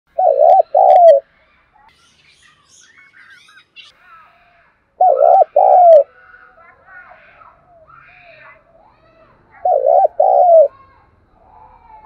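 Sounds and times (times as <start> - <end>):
dove cooing: 0.1 - 1.2, 5.0 - 6.2, 9.6 - 10.7
small birds chirping: 0.1 - 12.0.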